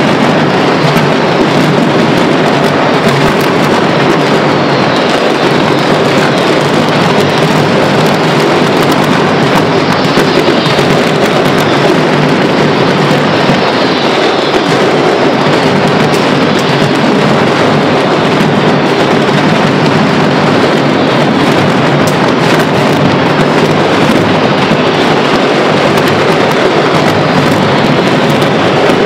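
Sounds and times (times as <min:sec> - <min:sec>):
firecrackers crackling barrage: 0:00.0 - 0:29.0.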